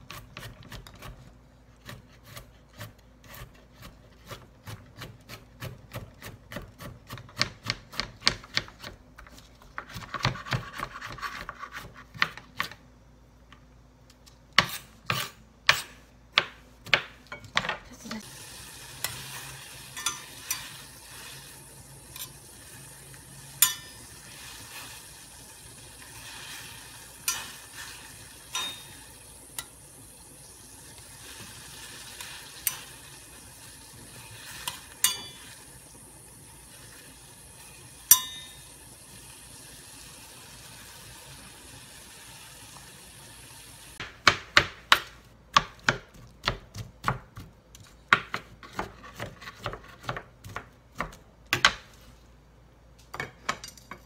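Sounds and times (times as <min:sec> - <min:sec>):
knife chopping on cutting board: 0:14.6 - 0:17.2, 0:44.0 - 0:51.8
sharp clinks in pot: 0:20.0 - 0:20.7, 0:23.6 - 0:24.0, 0:28.5 - 0:29.0, 0:35.0 - 0:35.5, 0:38.1 - 0:38.7.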